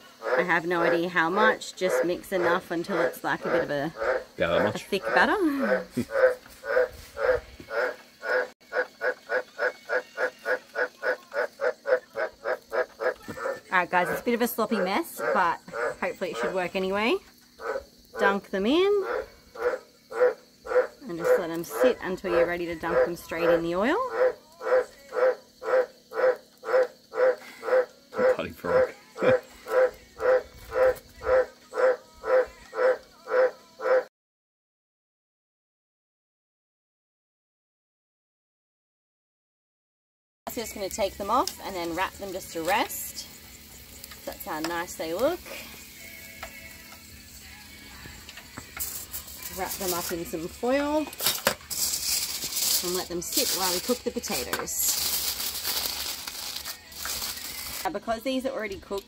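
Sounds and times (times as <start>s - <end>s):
frog croaking: 0.0s - 34.1s.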